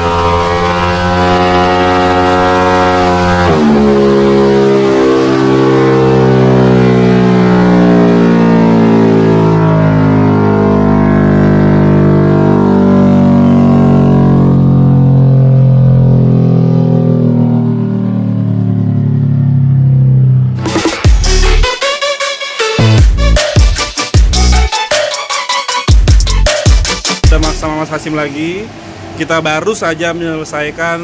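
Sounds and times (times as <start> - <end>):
scooter engine running hard: 0.0 - 5.3.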